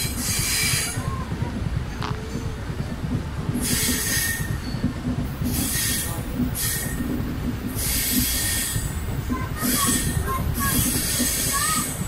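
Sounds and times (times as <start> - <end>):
train wheels rumbling on track: 0.0 - 12.0
wheels screeching: 3.6 - 12.0.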